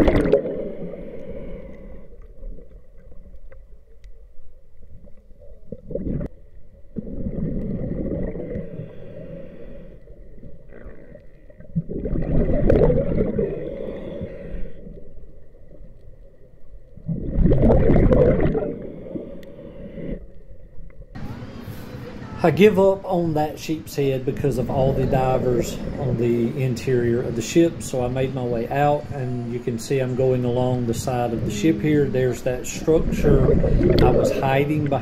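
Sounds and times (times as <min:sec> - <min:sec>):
underwater breath bubbles: 0:00.0 - 0:02.7, 0:07.0 - 0:15.1, 0:17.0 - 0:20.3, 0:32.9 - 0:35.0.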